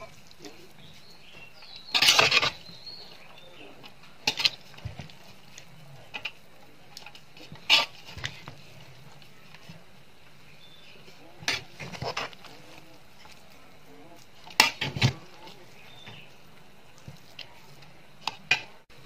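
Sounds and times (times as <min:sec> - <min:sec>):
metal ladle scraping pot: 0:01.6 - 0:02.8, 0:04.2 - 0:04.8, 0:07.4 - 0:08.6, 0:11.4 - 0:13.4, 0:14.4 - 0:16.3.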